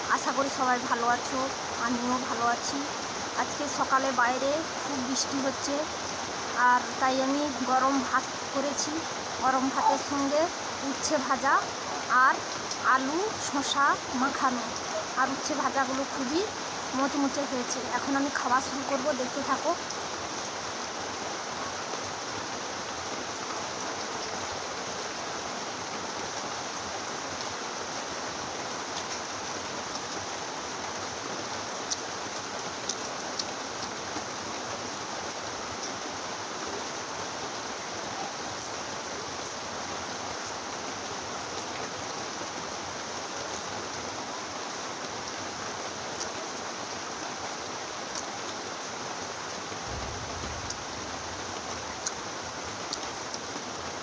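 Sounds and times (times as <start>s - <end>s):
heavy rain: 0.0s - 54.0s.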